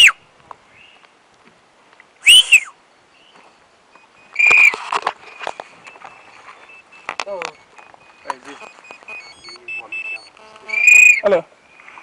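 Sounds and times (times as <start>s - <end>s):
loud human whistles: 0.0s - 0.2s, 2.2s - 2.8s, 9.2s - 11.2s.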